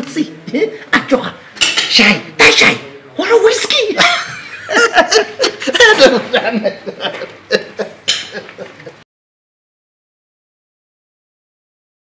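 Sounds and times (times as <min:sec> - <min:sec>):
man laughing: 0:04.0 - 0:09.0.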